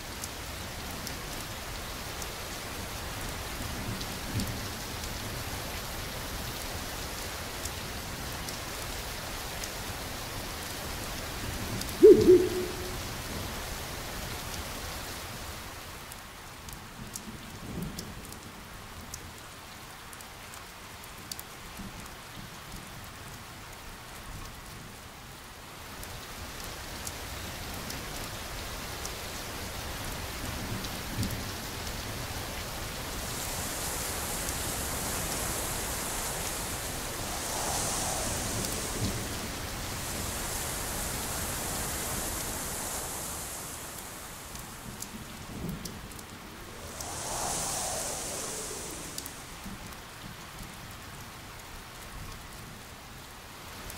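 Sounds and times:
raindrop ticks: 16.1 - 24.9
rain hissing: 31.1 - 51.6.

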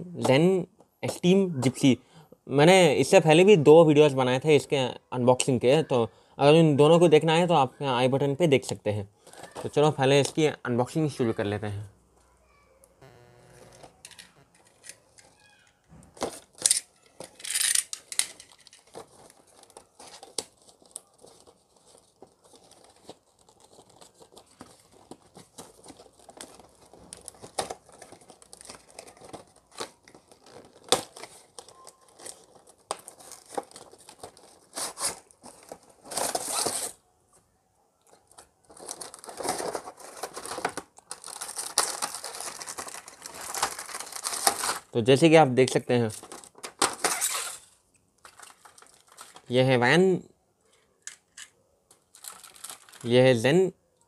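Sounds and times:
plastic tray crinkling: 13.6 - 37.0, 38.1 - 44.9, 46.0 - 49.5, 51.9 - 53.1.

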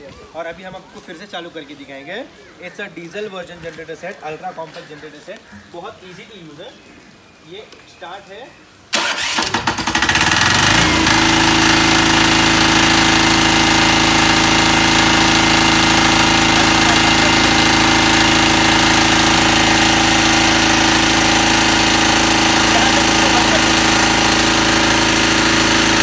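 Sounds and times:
diesel generator starting and running: 8.9 - 26.0.

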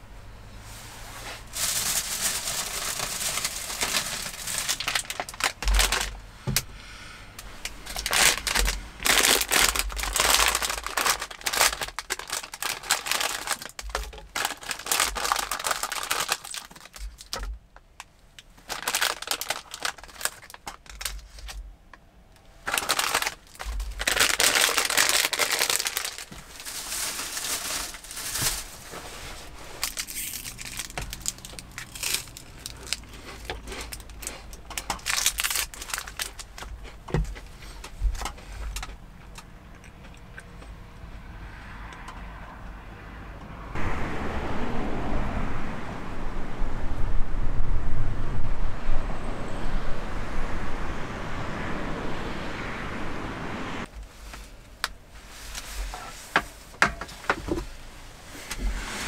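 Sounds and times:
plastic packaging crinkling: 1.4 - 6.2, 7.8 - 17.6, 18.6 - 21.6, 22.6 - 39.4.

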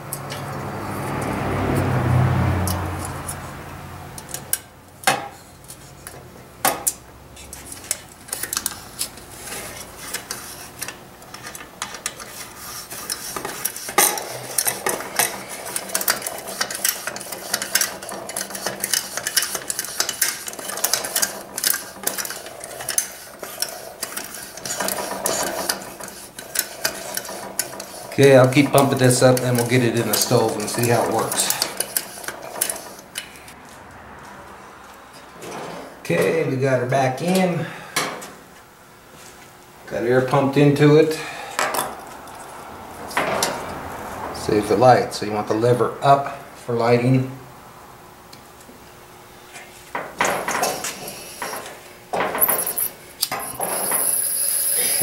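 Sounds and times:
air pump plunger clicking and scraping: 5.6 - 33.4.

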